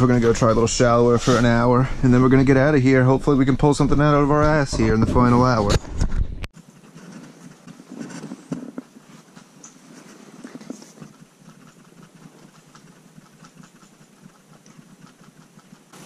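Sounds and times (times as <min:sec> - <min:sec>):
clothing and gear handling noise: 0:06.6 - 0:12.6.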